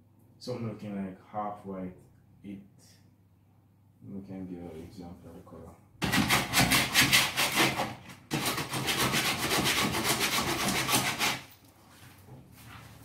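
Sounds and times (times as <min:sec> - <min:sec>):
hand sanding wood: 0:06.0 - 0:11.5.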